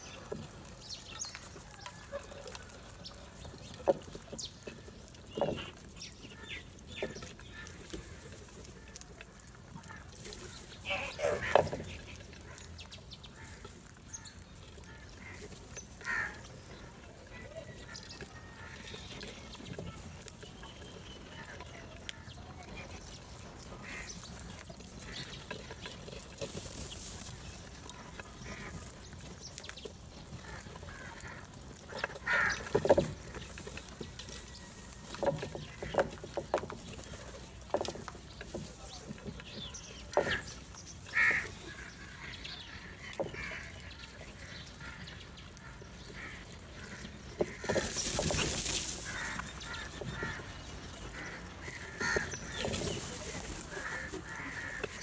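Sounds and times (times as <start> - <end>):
crows cawing: 13.3 - 16.9, 23.8 - 24.2, 30.3 - 33.2, 41.1 - 55.0.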